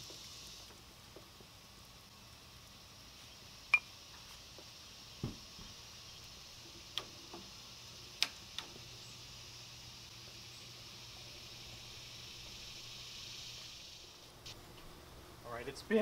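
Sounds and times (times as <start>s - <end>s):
grill hiss and hum: 0.0s - 16.0s
sharp ticks and pops: 3.7s - 8.9s, 11.5s - 14.6s
dull knock: 5.2s - 5.7s.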